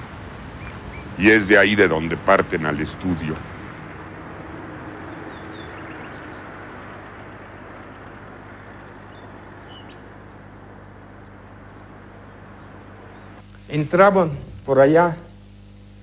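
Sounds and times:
background rush: 0:00.0 - 0:16.0
low steady hum: 0:00.0 - 0:16.0
faint bird chirps: 0:00.4 - 0:01.4, 0:04.7 - 0:13.7.

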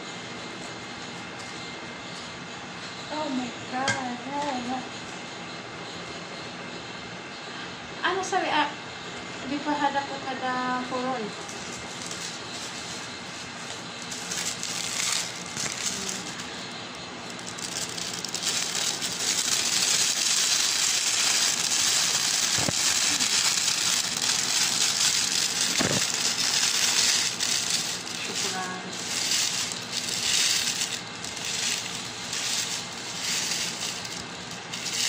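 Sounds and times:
plastic bag rustling: 0:11.4 - 0:35.0.

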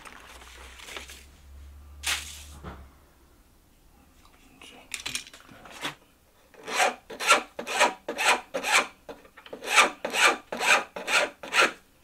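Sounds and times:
hand file scraping metal: 0:06.6 - 0:08.9, 0:09.5 - 0:11.8.

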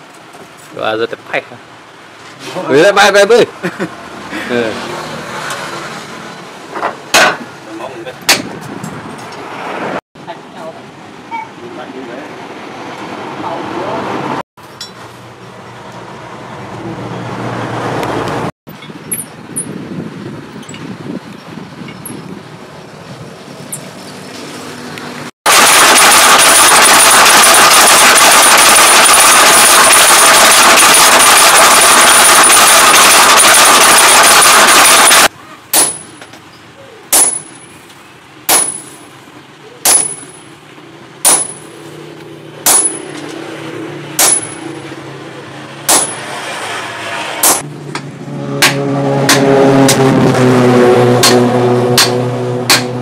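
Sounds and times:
power hammer pounding steel: 0:25.5 - 0:36.2, 0:38.5 - 0:38.9, 0:41.2 - 0:41.6, 0:42.6 - 0:43.1, 0:44.2 - 0:44.7, 0:45.8 - 0:46.4, 0:47.3 - 0:50.2, 0:51.2 - 0:53.0.

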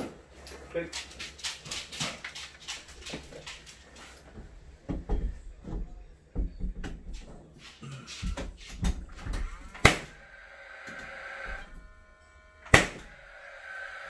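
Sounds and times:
timber thumping against framing: 0:08.2 - 0:10.2, 0:12.7 - 0:13.1.

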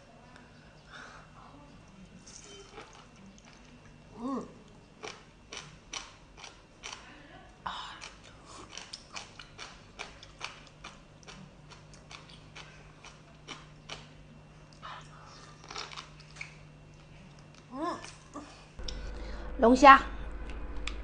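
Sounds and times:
wet clicks and squelches: 0:04.7 - 0:07.0.

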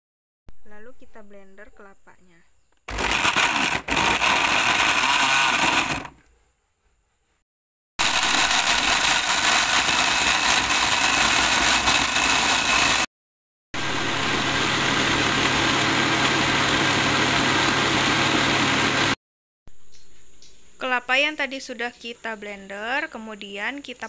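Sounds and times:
blender running: 0:02.9 - 0:06.2, 0:08.0 - 0:13.1, 0:13.8 - 0:19.2.

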